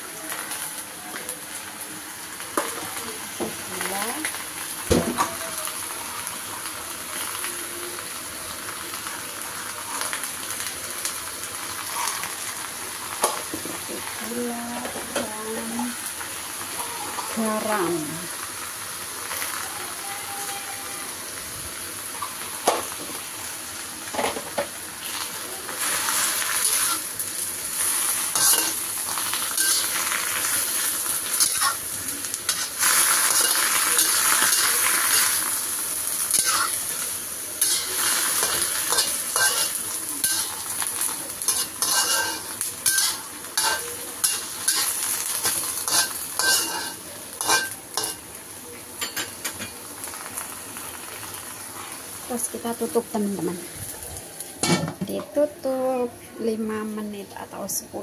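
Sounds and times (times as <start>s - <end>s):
greens sizzling in a wok: 0.0s - 58.0s
metal spatula scraping wok: 25.8s - 27.1s, 27.8s - 35.5s, 36.2s - 37.0s, 37.6s - 40.8s, 41.4s - 48.2s.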